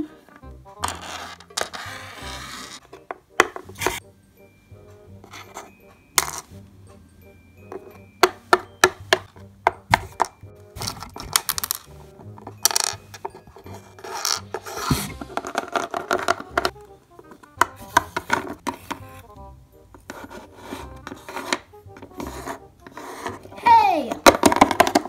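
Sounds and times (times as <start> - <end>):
background music: 0.0 - 25.0
toys scraping on table: 0.8 - 2.9, 13.7 - 16.7, 20.1 - 23.5
plastic toys clicking and tapping: 7.7 - 19.1, 21.0 - 25.0.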